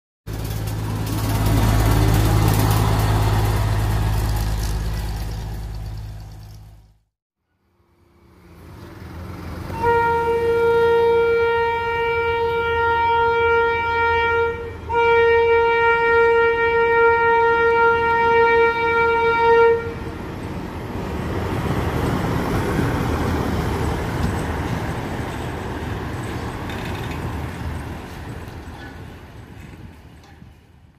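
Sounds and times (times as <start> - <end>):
diesel engine passing: 0.3 - 7.0, 7.6 - 13.4
machine rumbling along track: 0.3 - 7.0, 16.3 - 30.9
horn blasts: 9.7 - 20.1.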